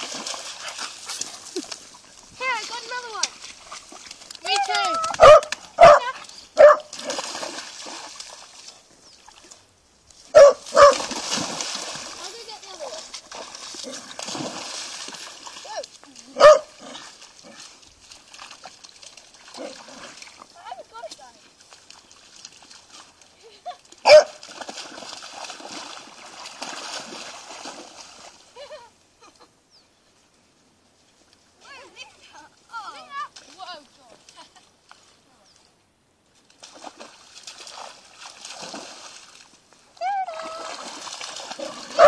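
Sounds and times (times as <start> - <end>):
dogs splashing through water: 0.0 - 28.9, 36.4 - 42.0
dog barking: 5.2 - 6.9, 10.3 - 11.0, 16.4 - 16.8, 24.0 - 24.4, 41.6 - 42.0.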